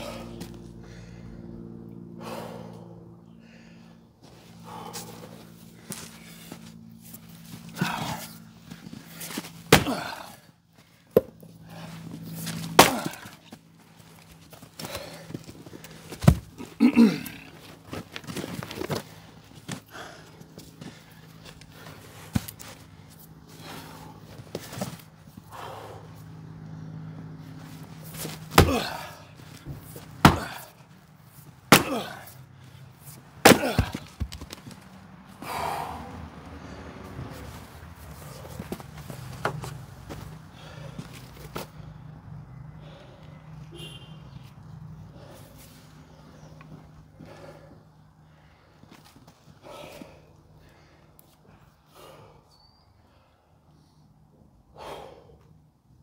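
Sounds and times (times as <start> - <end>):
maul striking firewood: 9.7 - 10.4, 12.5 - 13.5, 16.1 - 17.2, 28.5 - 30.8, 31.7 - 32.4, 33.4 - 34.7
split wood halves knocking: 30.2 - 30.6, 33.4 - 34.6.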